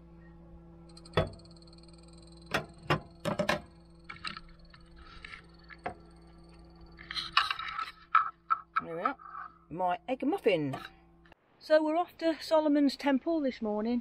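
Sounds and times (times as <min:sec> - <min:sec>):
frying pan knocking on hob: 0:01.1 - 0:01.7, 0:02.4 - 0:03.8.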